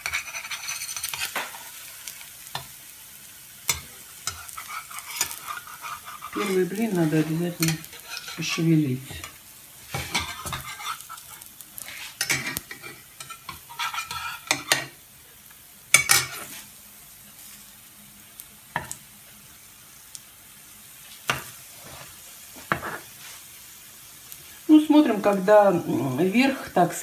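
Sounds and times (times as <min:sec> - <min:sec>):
metal spatula scraping a pan: 0:00.0 - 0:02.7, 0:03.7 - 0:15.0, 0:15.9 - 0:16.7, 0:21.3 - 0:23.5
faint frying sizzle: 0:00.0 - 0:27.0.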